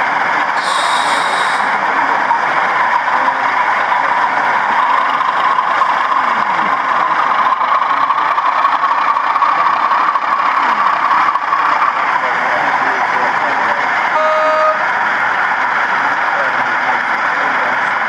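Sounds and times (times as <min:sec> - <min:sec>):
model locomotive diesel engine sound: 0:00.0 - 0:18.0
people chatting: 0:00.6 - 0:05.3, 0:06.0 - 0:07.6, 0:09.4 - 0:11.0, 0:11.8 - 0:14.8, 0:15.8 - 0:18.0.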